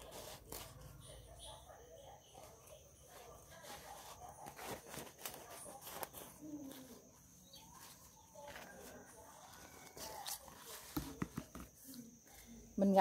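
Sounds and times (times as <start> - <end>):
scissors snipping paper: 0.0 - 1.1, 2.3 - 7.1.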